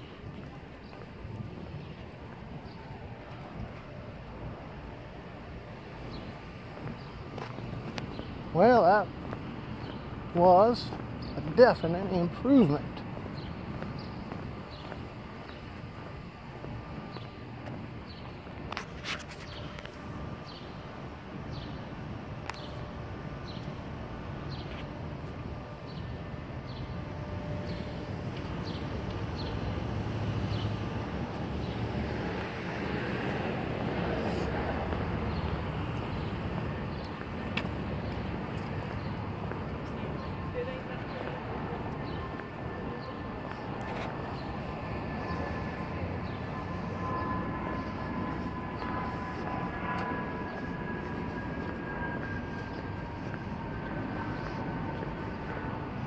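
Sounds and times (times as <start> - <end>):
rumble of passing vehicles: 0.0 - 56.0
faint high whine: 31.0 - 56.0.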